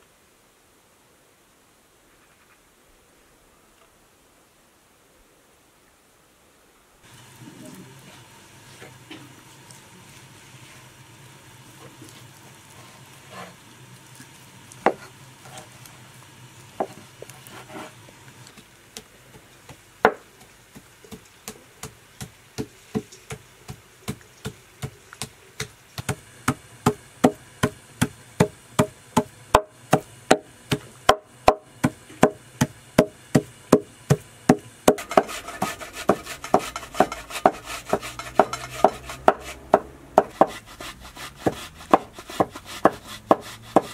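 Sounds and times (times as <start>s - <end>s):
background hiss: 0.0s - 43.9s
cleaver chopping meat on wooden board: 19.7s - 40.6s, 41.2s - 43.9s.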